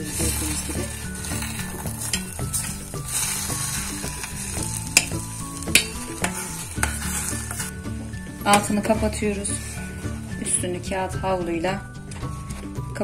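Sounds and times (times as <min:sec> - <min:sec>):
spoon scraping and knocking pot: 0:00.0 - 0:10.6
halva sizzling in pot: 0:00.0 - 0:13.0.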